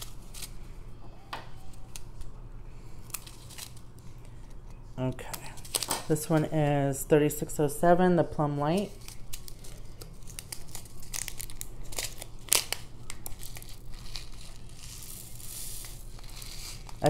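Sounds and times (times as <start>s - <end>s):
plastic bag crinkling and tearing: 8.8s - 17.0s.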